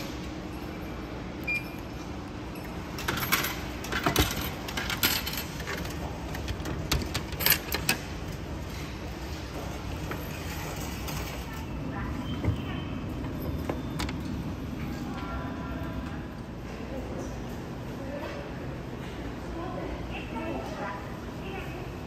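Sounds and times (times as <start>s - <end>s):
vending machine clicks and clatters: 0.0s - 15.3s.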